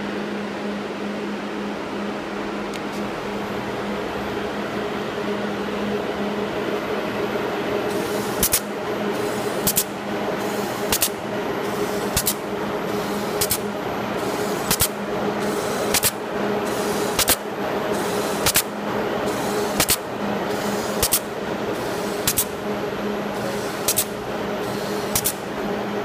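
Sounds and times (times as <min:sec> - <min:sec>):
machine motor hum: 0:00.0 - 0:26.0
sharp machine clicks: 0:08.4 - 0:09.9, 0:10.5 - 0:17.4, 0:18.0 - 0:18.7, 0:19.3 - 0:22.6, 0:23.4 - 0:25.4.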